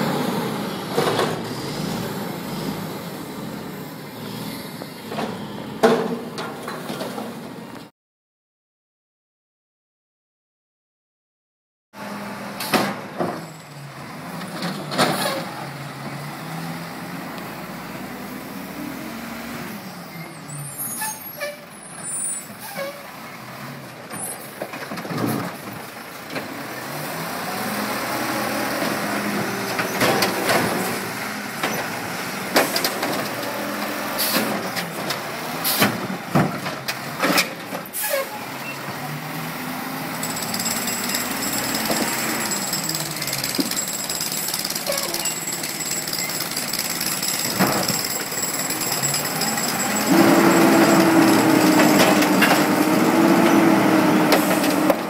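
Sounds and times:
garbage truck engine revving: 0.0s - 6.3s, 12.0s - 20.8s, 25.0s - 43.7s, 45.6s - 55.0s
loud knocks and bangs of carts: 0.8s - 1.8s, 5.0s - 7.6s, 12.6s - 16.3s, 24.0s - 26.7s, 28.6s - 38.0s, 40.1s - 55.0s.

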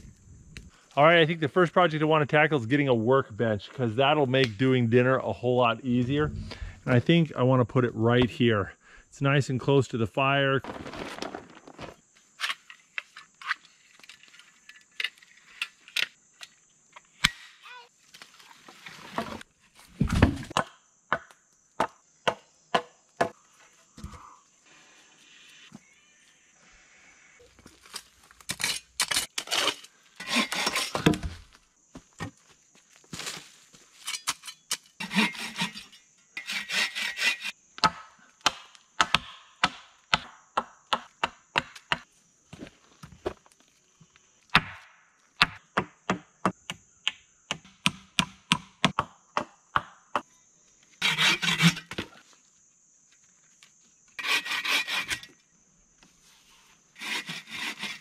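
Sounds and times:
handsaw rasping through wood: 30.2s - 30.9s, 35.0s - 35.8s, 36.4s - 37.5s, 51.0s - 51.8s, 54.2s - 55.3s, 57.0s - 58.0s.

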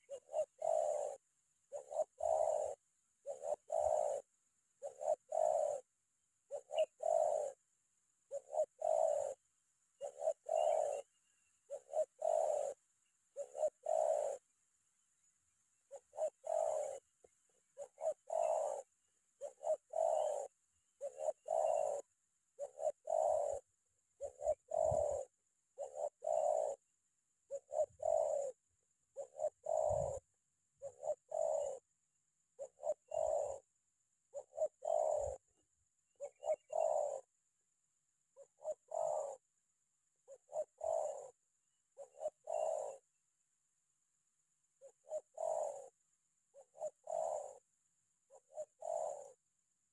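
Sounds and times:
dove cooing: 0.0s - 15.1s, 15.8s - 37.6s, 38.2s - 43.2s, 44.6s - 49.9s.

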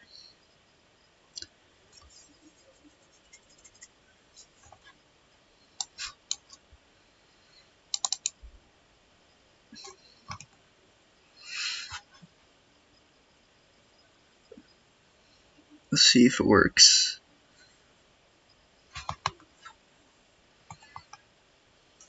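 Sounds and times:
mouse and keyboard clicking: 7.9s - 8.4s, 9.8s - 10.6s, 18.9s - 19.4s.

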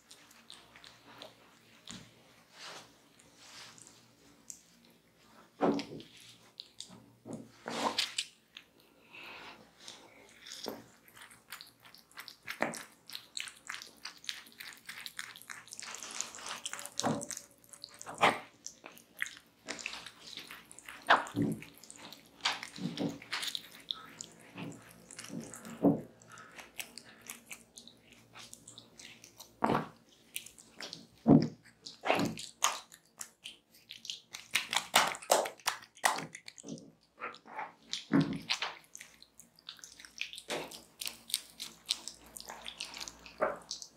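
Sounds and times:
wet squishing and smacking: 0.0s - 43.9s.

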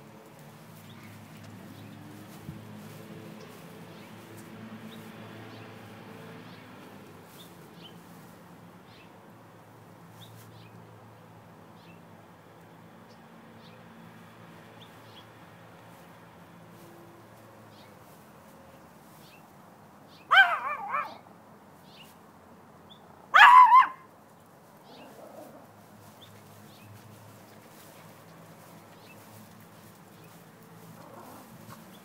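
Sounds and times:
small dog barking: 20.3s - 21.3s, 23.3s - 24.1s.

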